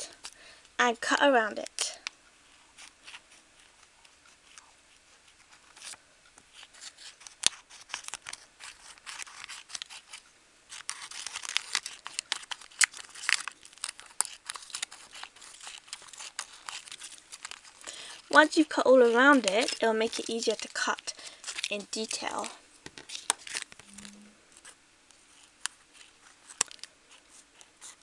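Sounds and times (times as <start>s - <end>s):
plastic sheet crinkling: 5.3s - 28.0s
scissors snipping plastic: 6.8s - 24.1s, 25.6s - 26.9s.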